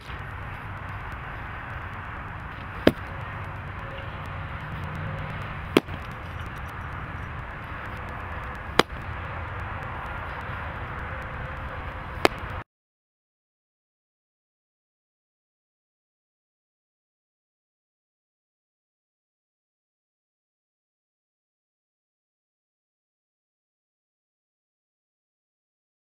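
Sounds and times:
outdoor background noise: 0.0 - 12.7
baseball popping into leather mitt: 2.6 - 3.6, 4.2 - 7.0, 7.6 - 9.0, 12.2 - 12.5.

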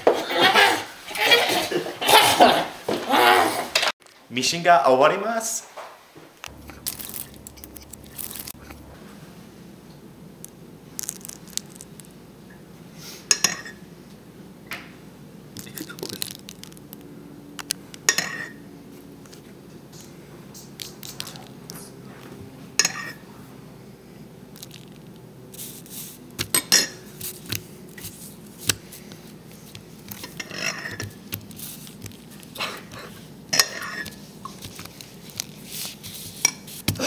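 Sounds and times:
wet squishes of spilled milk: 15.6 - 17.8.

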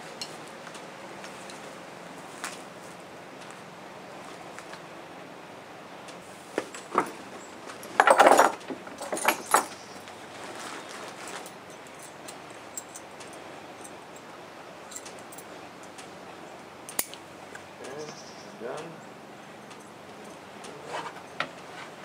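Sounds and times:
metal clips and buckles jangling: 6.7 - 9.9, 11.2 - 14.2, 14.9 - 15.5, 16.9 - 17.2.

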